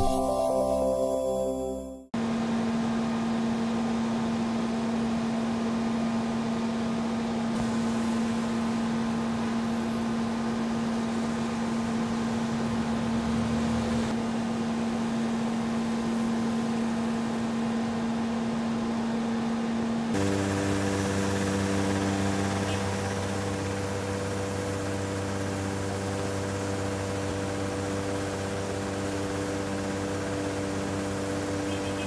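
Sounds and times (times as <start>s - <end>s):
heavy trucks droning: 20.2s - 32.0s.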